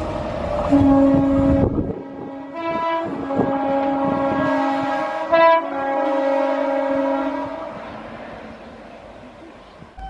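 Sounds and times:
train horn blast: 0:00.0 - 0:08.1
train noise: 0:00.0 - 0:10.0.

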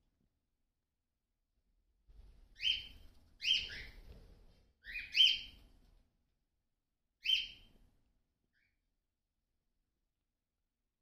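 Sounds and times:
cockatiel chirping: 0:02.6 - 0:04.1, 0:04.8 - 0:05.6, 0:07.2 - 0:07.7.

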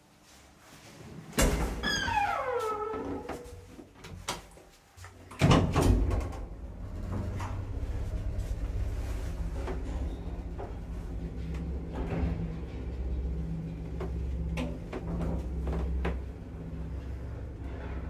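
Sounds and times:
loud elevator door clunk: 0:05.4 - 0:08.5, 0:09.5 - 0:16.6
low hum: 0:05.5 - 0:18.0.

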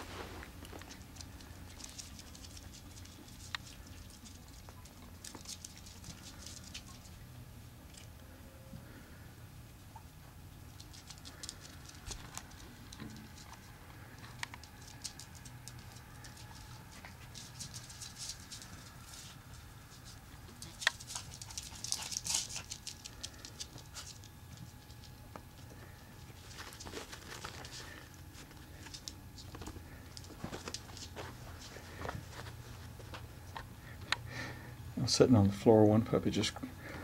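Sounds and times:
puppy claws clicking on tile: 0:10.8 - 0:13.5, 0:14.2 - 0:16.7, 0:20.6 - 0:25.1.

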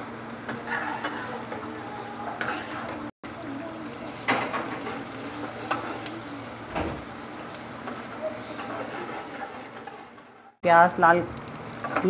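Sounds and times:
onions sizzling in hot oil: 0:00.0 - 0:12.0
spatula scraping and tapping pan: 0:00.4 - 0:01.7, 0:02.3 - 0:03.1, 0:04.3 - 0:06.2, 0:07.8 - 0:10.4.

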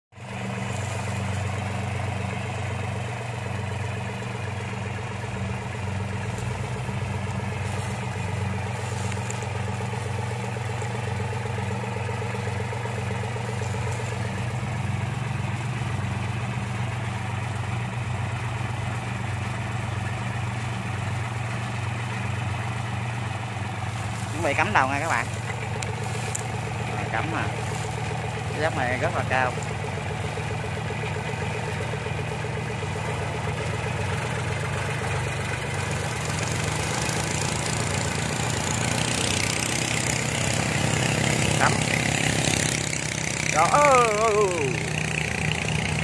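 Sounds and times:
tracked carrier engine running: 0:00.1 - 0:46.0.

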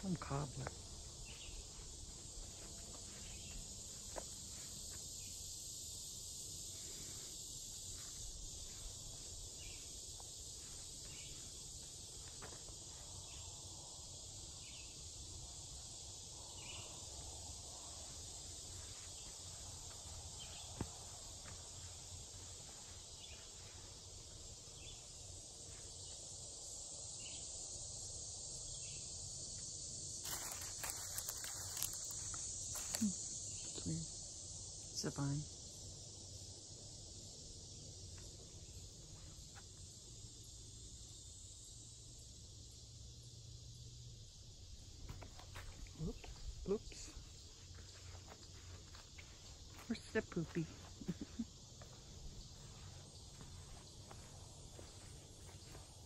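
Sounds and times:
faint footsteps on trail: 0:00.0 - 0:05.2, 0:07.0 - 0:13.4, 0:17.6 - 0:26.2, 0:30.2 - 0:33.4, 0:44.8 - 0:56.0
insects chorus: 0:00.0 - 0:56.0.

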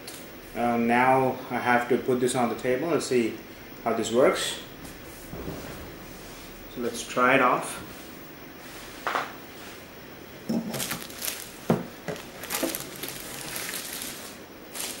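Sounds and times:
plastic wrap rustling: 0:10.6 - 0:15.0.

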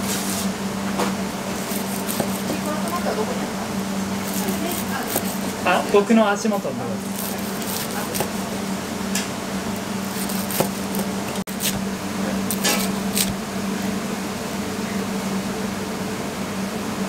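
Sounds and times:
low mechanical hum: 0:00.0 - 0:17.0
knife crunching through crust: 0:01.5 - 0:03.2, 0:04.2 - 0:05.7, 0:07.0 - 0:08.7, 0:09.6 - 0:13.4.

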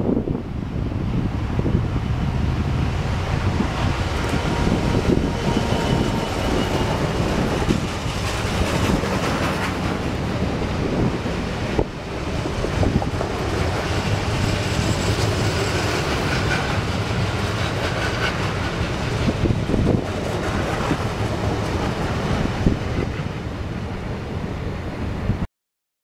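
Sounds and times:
train wheels clattering over rails: 0:03.2 - 0:23.4.

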